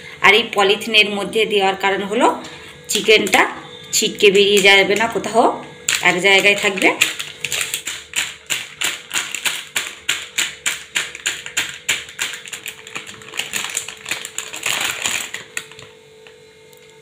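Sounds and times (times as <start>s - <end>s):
stone pestle pounding meat: 7.0s - 12.5s.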